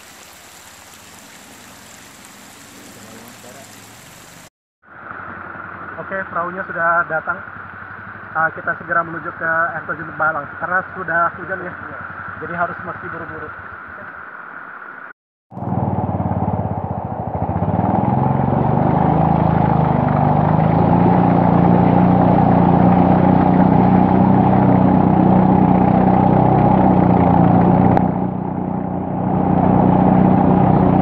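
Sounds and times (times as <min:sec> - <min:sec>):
small boat engine running: 0:00.0 - 0:06.3, 0:15.5 - 0:31.0.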